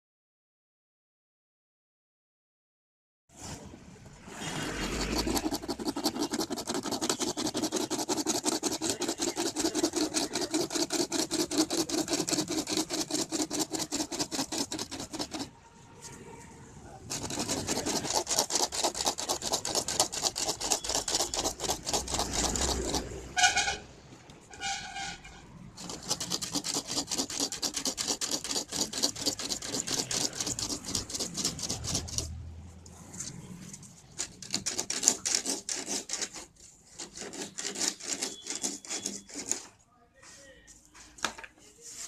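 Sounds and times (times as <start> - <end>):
hand tool rasping on plastic: 4.6 - 15.5, 17.1 - 23.8, 25.8 - 32.4, 33.2 - 39.8.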